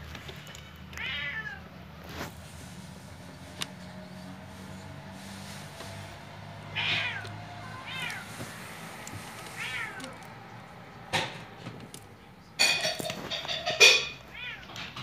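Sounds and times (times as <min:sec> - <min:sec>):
cat meowing: 0:00.9 - 0:01.7, 0:06.6 - 0:10.4, 0:14.3 - 0:15.0.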